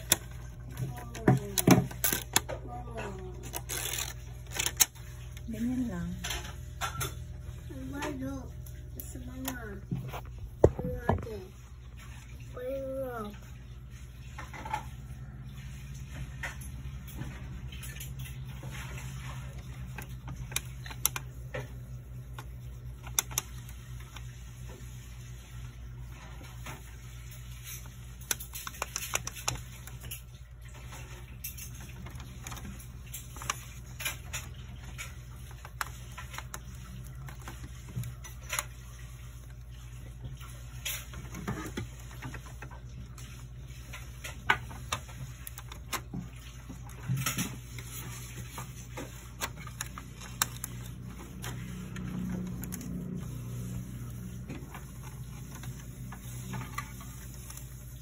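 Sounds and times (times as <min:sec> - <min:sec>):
hands clicking and tapping printer: 0:00.0 - 0:05.0, 0:19.6 - 0:24.3, 0:27.7 - 0:30.3, 0:44.1 - 0:53.2.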